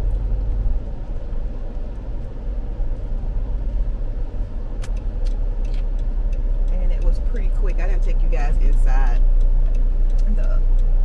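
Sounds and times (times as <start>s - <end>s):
car engine and road noise: 0.0s - 11.0s
sharp click: 4.7s - 6.1s.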